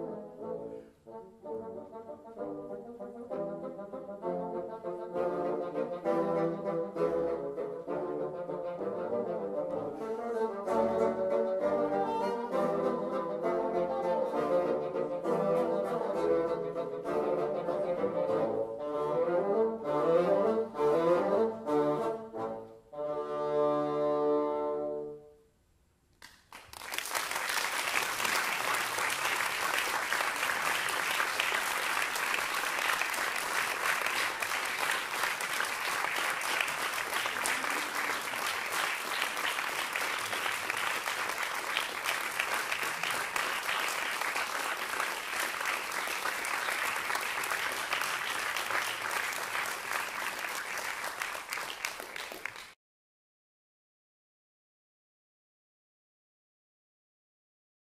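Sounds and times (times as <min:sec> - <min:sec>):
bassoon ensemble playing: 0:00.0 - 0:25.2
audience applause: 0:26.3 - 0:52.8.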